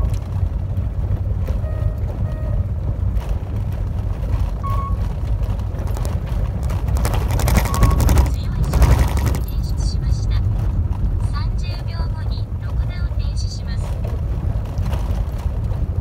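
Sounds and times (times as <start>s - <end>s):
tyres rumbling on gravel: 0.0s - 16.0s
clatter of stones: 3.1s - 9.6s, 13.8s - 16.0s.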